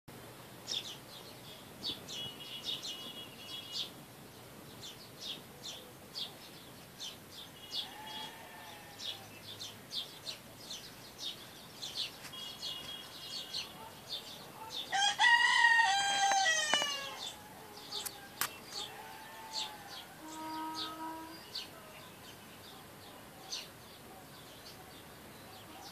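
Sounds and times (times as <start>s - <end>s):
small birds chirping: 0.5s - 25.9s
rooster crowing: 14.9s - 21.3s
faint bird call: 15.8s - 24.4s.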